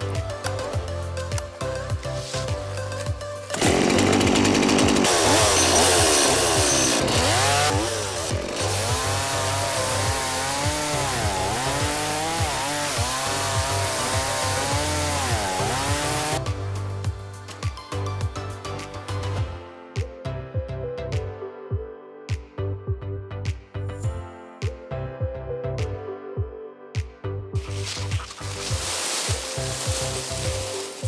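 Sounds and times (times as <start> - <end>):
background music with steady beat: 0.0 - 3.6, 6.6 - 31.0
chainsaw cutting log: 3.4 - 16.4, 27.7 - 31.0.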